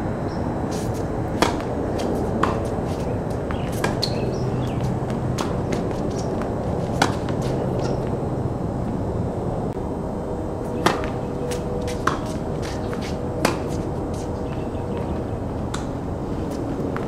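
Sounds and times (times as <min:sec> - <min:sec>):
steady background hiss: 0:00.0 - 0:17.0
tennis ball hit by racquet: 0:00.7 - 0:08.1, 0:10.8 - 0:14.2.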